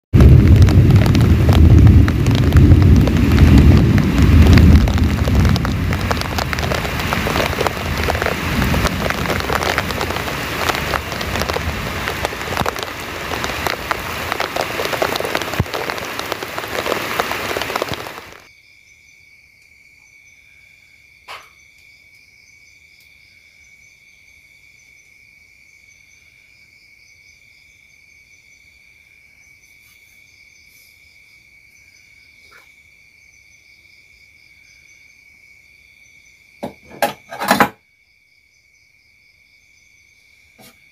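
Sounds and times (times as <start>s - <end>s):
deep rumble: 0.2s - 18.4s
heavy rain pouring: 0.2s - 18.5s
insects chirring: 0.2s - 40.9s.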